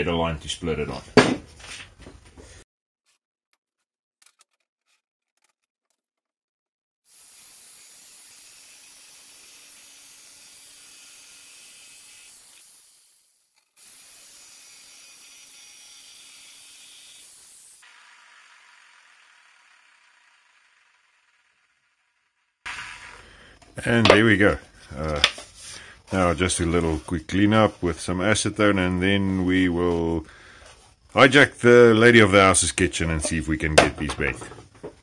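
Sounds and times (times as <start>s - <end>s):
angle grinder cutting plastic pipe: 7.1s - 28.1s.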